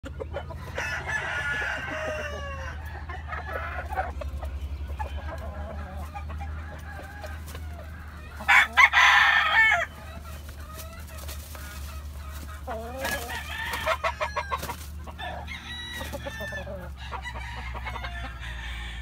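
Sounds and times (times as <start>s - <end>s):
rooster and hens clucking: 0.0s - 19.0s.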